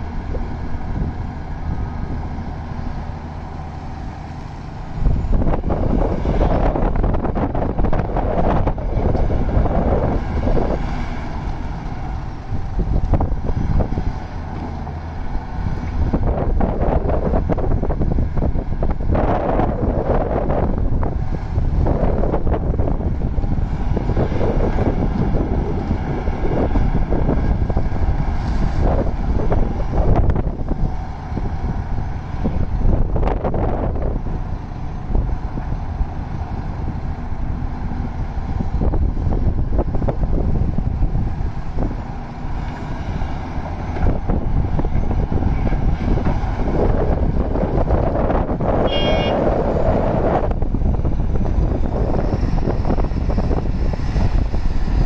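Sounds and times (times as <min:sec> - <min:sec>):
excavator diesel engine running: 0:00.0 - 0:55.0
wind on microphone: 0:00.0 - 0:55.0
high-pitched tone: 0:48.9 - 0:49.4.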